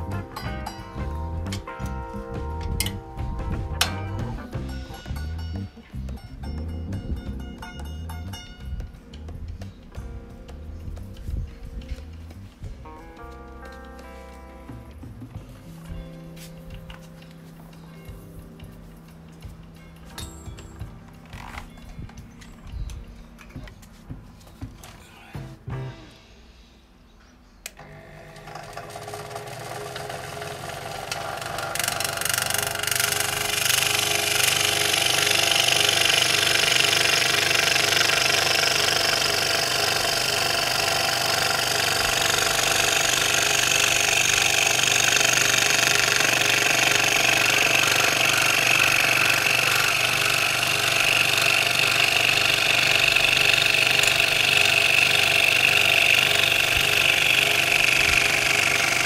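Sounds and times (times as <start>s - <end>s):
electric scroll saw cutting wood: 27.7s - 59.0s.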